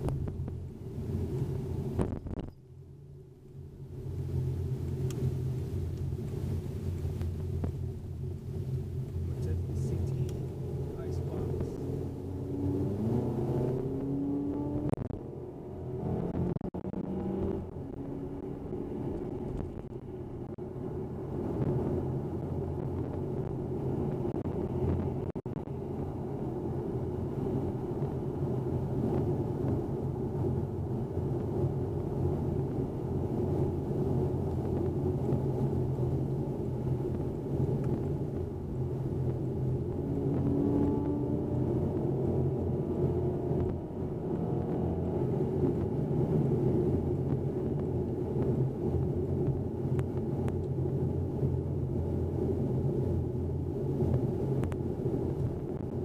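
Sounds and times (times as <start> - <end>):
car engine drone from cabin: 0.0 - 56.0
road noise: 0.0 - 56.0.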